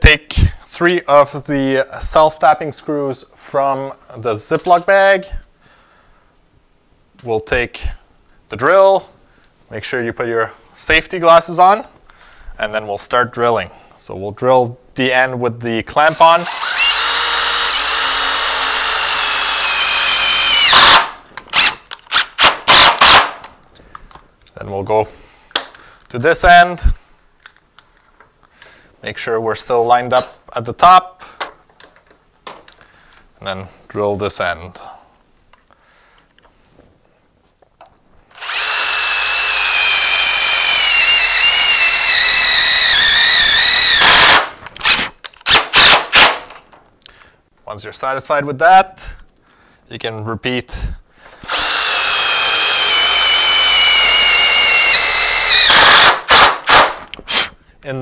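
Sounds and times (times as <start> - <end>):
cordless drill whining: 16.1 - 23.2, 38.3 - 46.2, 51.4 - 56.8.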